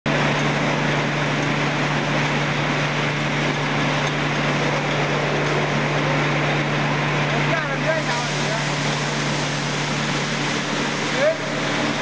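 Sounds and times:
electric machinery humming: 0:00.1 - 0:12.0.

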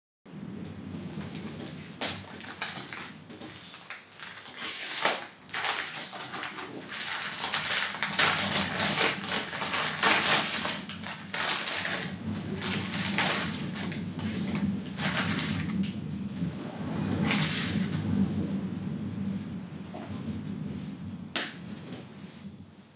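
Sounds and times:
plastic bag crinkling: 0:01.6 - 0:15.9.

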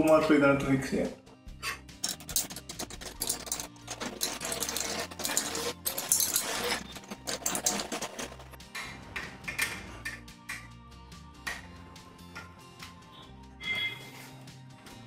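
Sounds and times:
background music: 0:00.0 - 0:15.0
plastic and metal clicks and scrapes: 0:02.0 - 0:08.6.

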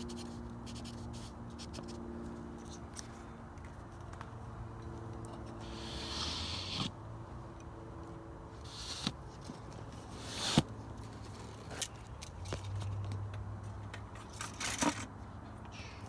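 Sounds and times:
rustling and scraping: 0:08.6 - 0:15.2.

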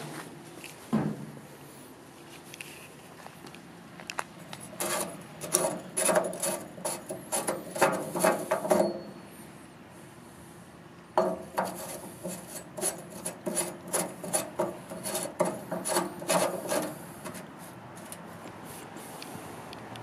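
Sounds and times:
metal nozzles clinking and scraping: 0:04.4 - 0:09.2, 0:11.2 - 0:18.3.

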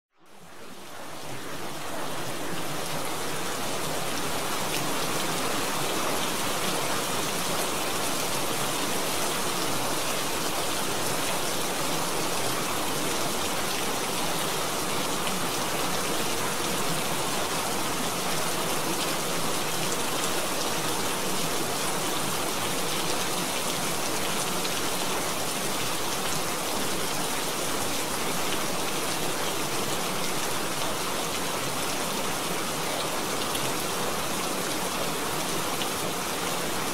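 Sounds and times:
steady rain hiss: 0:00.2 - 0:36.9.

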